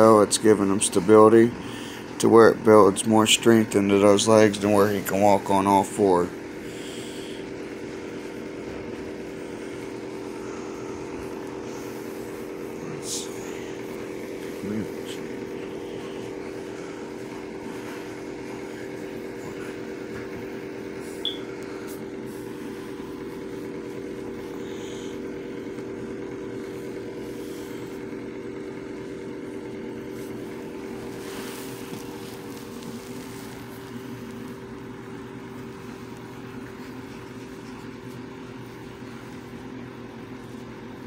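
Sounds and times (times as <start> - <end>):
steady mechanical hum: 0.0 - 41.0
high chirp: 21.2 - 21.5.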